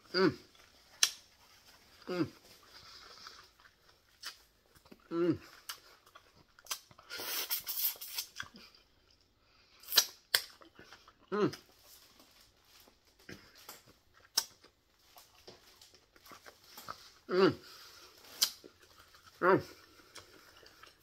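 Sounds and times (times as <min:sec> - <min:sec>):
woman chewing food: 0:00.0 - 0:21.0
lip smacks: 0:00.9 - 0:01.3, 0:05.6 - 0:08.8, 0:09.8 - 0:11.6, 0:13.6 - 0:14.7, 0:18.2 - 0:18.8.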